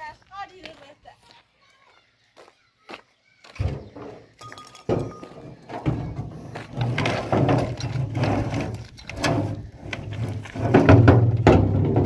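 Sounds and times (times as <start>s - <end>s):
metal drum scraping and knocking: 3.6s - 12.0s.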